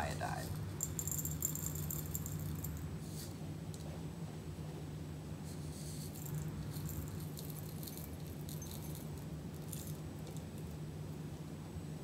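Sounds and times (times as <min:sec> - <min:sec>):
steady low hum: 0:00.0 - 0:12.0
crystals rattling onto glass: 0:00.6 - 0:02.9, 0:06.1 - 0:10.7.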